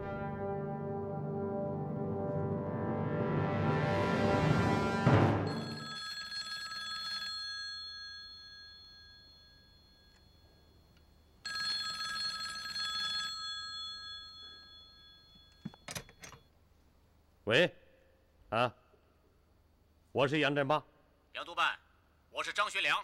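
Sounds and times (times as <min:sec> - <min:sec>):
telephone bell ringing: 0:05.5 - 0:16.4.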